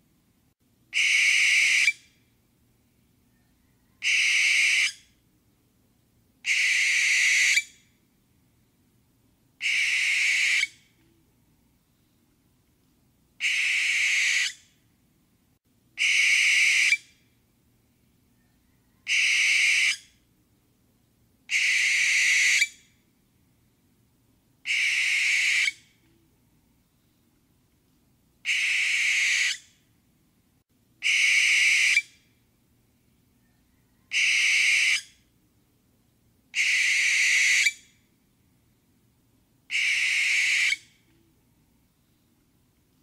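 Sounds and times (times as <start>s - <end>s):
barn owl screech: 39.7s - 40.8s.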